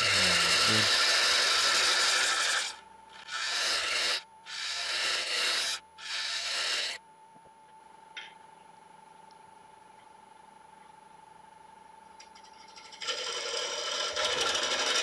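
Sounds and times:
cutter scraping wood on lathe: 0:00.0 - 0:07.0, 0:12.8 - 0:15.0
faint lathe hum: 0:00.0 - 0:15.0.

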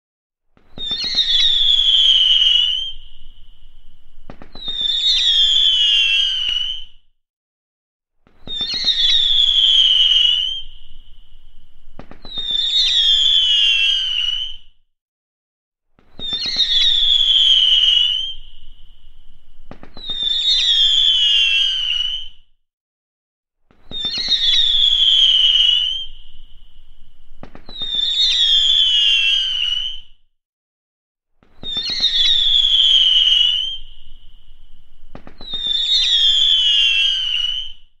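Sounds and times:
firework screamers whistling: 0:00.7 - 0:07.0, 0:08.4 - 0:14.7, 0:16.1 - 0:22.4, 0:23.8 - 0:30.1, 0:31.6 - 0:38.0
firework crackles: 0:00.8 - 0:06.6, 0:11.9 - 0:13.6, 0:19.6 - 0:20.9, 0:27.4 - 0:29.4, 0:35.0 - 0:37.6
sharp pops: 0:04.2 - 0:05.0, 0:11.9 - 0:12.6, 0:19.6 - 0:20.3, 0:27.3 - 0:28.1, 0:35.0 - 0:35.8.

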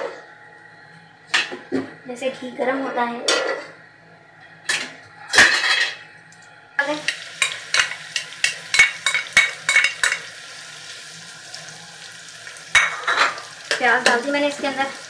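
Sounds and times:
onions sizzling in hot ghee: 0:06.8 - 0:15.0.

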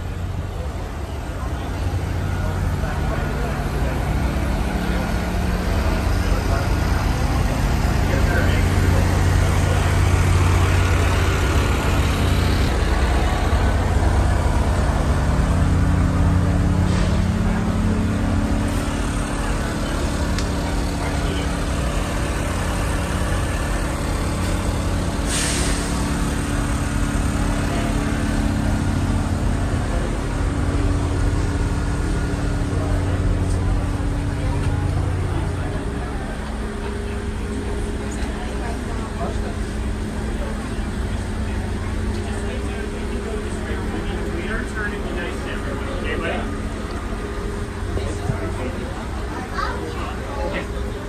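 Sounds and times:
diesel locomotive engine idling: 0:00.0 - 0:51.0
air hiss: 0:25.2 - 0:26.1.

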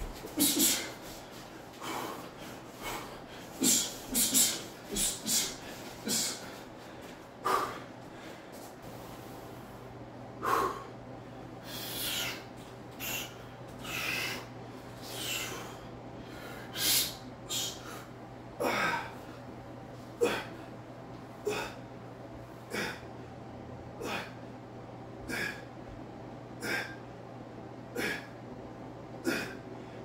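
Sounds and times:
man breathing hard: 0:00.0 - 0:09.8, 0:10.4 - 0:20.8, 0:26.6 - 0:27.1, 0:29.2 - 0:30.0
steady low hum: 0:00.0 - 0:30.0.

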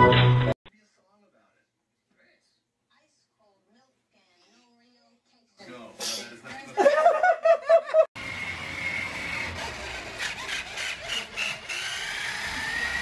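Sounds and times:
toy truck motor whining: 0:08.2 - 0:13.0.

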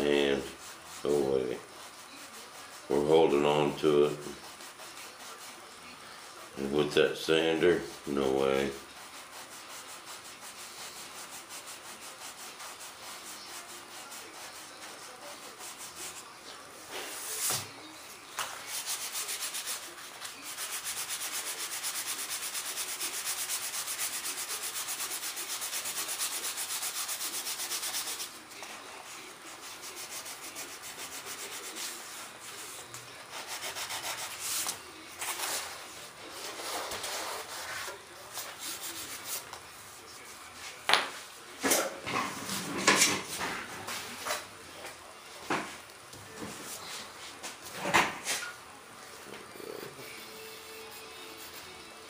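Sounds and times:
sandpaper rubbing on wood: 0:00.0 - 0:05.7, 0:06.3 - 0:16.2, 0:18.6 - 0:40.3.

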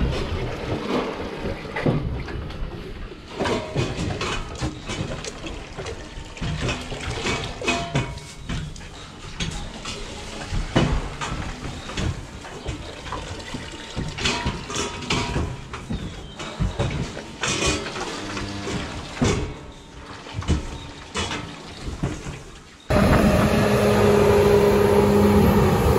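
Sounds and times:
metal bowls clanking: 0:06.5 - 0:09.2.

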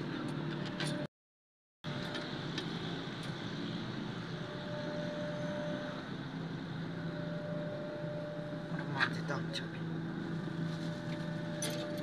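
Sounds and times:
steady machine hum: 0:01.9 - 0:12.0
faint thin whine: 0:04.1 - 0:12.0.

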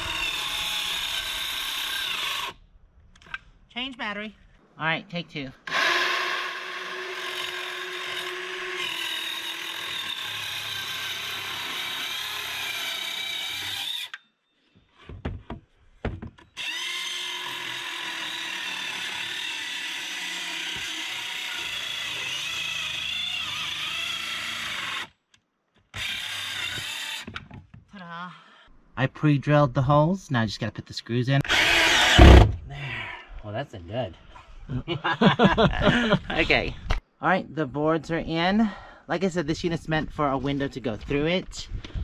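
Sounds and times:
jigsaw cutting wood: 0:00.0 - 0:02.6, 0:05.7 - 0:14.1, 0:16.6 - 0:25.1, 0:26.0 - 0:27.3, 0:31.4 - 0:32.5
knocks: 0:15.0 - 0:16.4.

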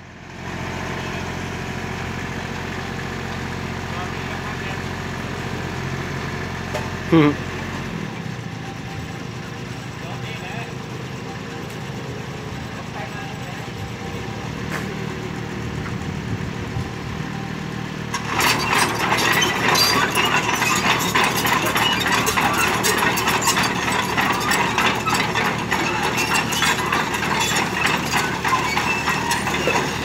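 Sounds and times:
diesel engine idling: 0:00.0 - 0:30.0
crawler tracks clattering: 0:18.1 - 0:30.0.

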